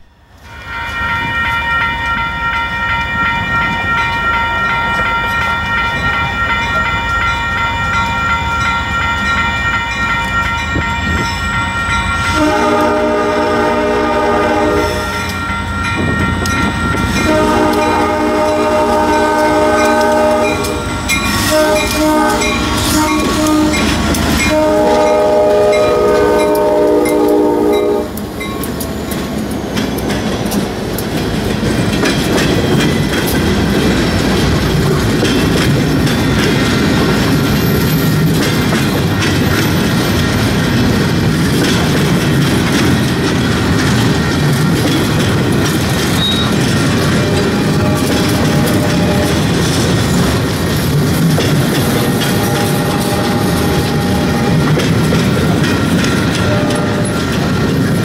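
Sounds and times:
freight locomotive whine and rumble: 0.0 - 58.0
multi-note air horn blasts: 12.3 - 15.4, 17.2 - 28.2.

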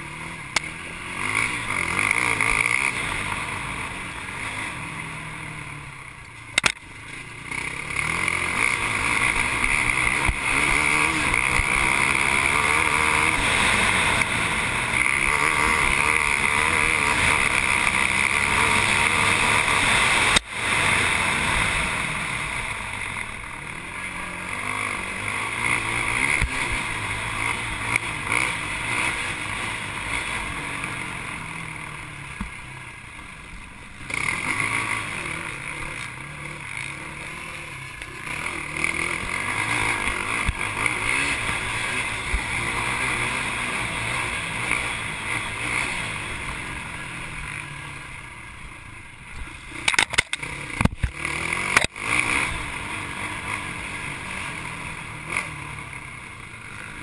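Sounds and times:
atv engine revving: 0.0 - 57.0
knocks and thumps over ruts: 6.2 - 31.5, 49.3 - 55.9.

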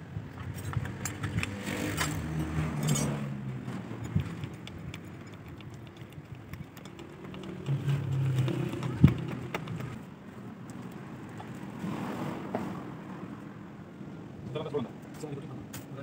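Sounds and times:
metal tools and parts clinking: 0.5 - 3.4.

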